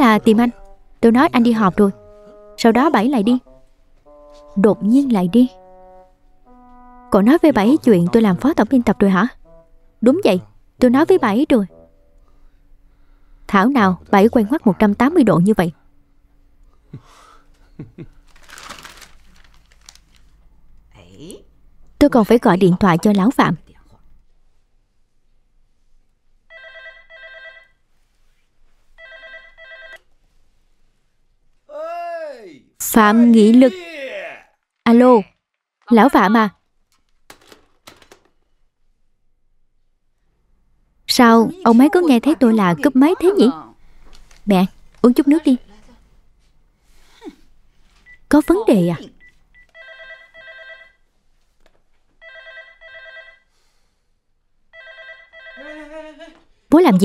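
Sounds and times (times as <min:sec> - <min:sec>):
telephone ringing: 0:26.5 - 0:27.8, 0:29.0 - 0:30.0, 0:49.2 - 0:51.1, 0:52.2 - 0:53.5, 0:54.7 - 0:55.7.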